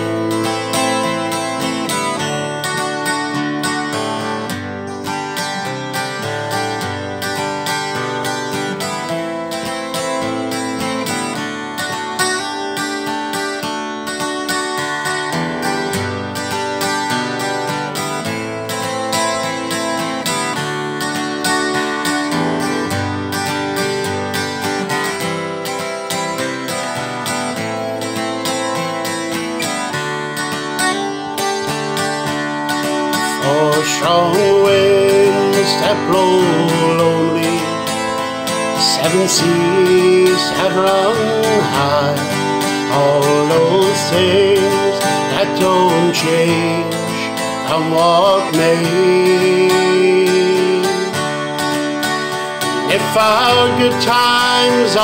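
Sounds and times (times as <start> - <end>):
acoustic guitar strumming chords: 0.0 - 55.0
man singing: 33.0 - 51.9, 52.5 - 55.0.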